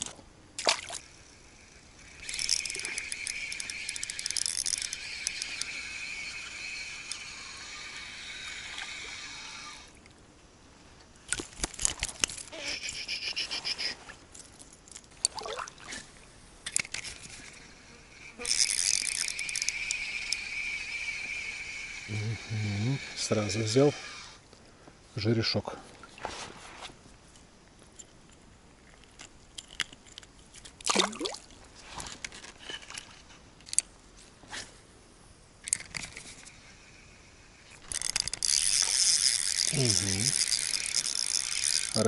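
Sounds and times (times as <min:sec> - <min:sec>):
fishing reel whirring: 0:00.8 - 0:10.0, 0:11.8 - 0:13.9, 0:16.7 - 0:24.4, 0:35.6 - 0:42.0.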